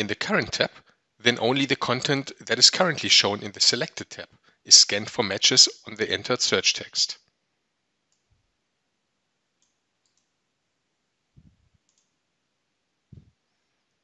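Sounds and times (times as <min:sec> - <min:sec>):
faint mouse clicks: 0:08.1 - 0:08.3, 0:09.6 - 0:10.3, 0:11.4 - 0:12.1.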